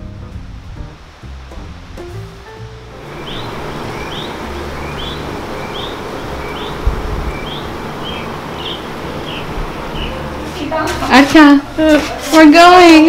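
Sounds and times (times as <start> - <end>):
steady background rush: 2.2 - 13.0
small bird high chirps: 3.1 - 10.2.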